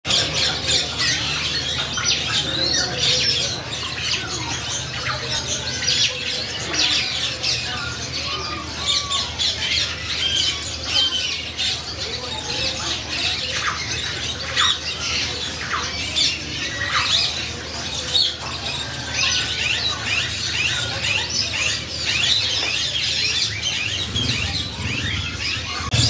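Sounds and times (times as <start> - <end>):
birds chirping and squawking: 0.1 - 26.0.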